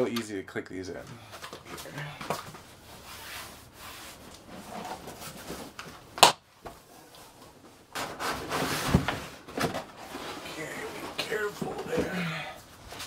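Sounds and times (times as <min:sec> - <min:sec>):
cardboard rustling and scraping: 0:02.4 - 0:06.0, 0:06.8 - 0:12.1.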